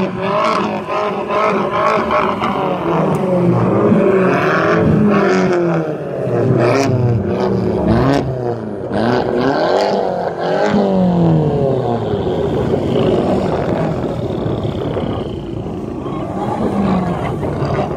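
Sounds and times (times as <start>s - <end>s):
several car engines revving: 0.0s - 17.9s.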